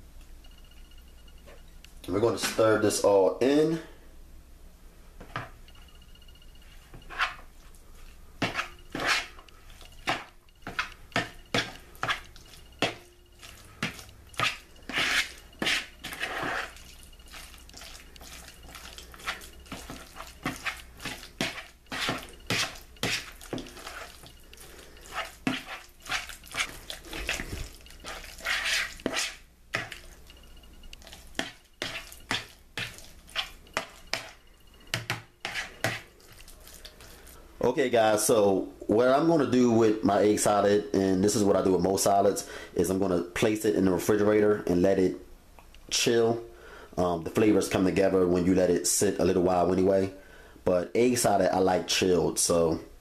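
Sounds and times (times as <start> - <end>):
spoon scraping a bowl: 6.6 - 7.5, 8.4 - 30.4, 31.0 - 37.4
wet mixing sounds: 7.1 - 38.3.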